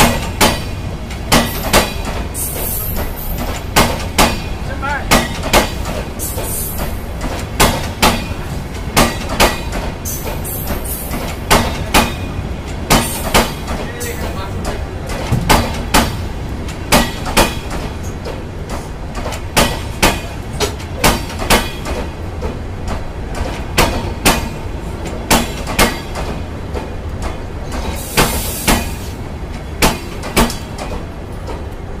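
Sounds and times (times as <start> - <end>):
wheels clicking over rail joints: 0.0 - 31.9
train coaches rumbling past: 0.0 - 32.0
brief hiss: 28.0 - 29.2.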